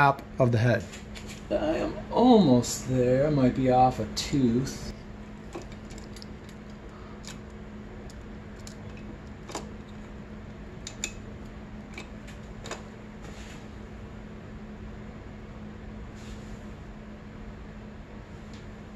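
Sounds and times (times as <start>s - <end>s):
steady low hum: 0.0s - 18.9s
metallic chain clicks: 5.4s - 7.5s.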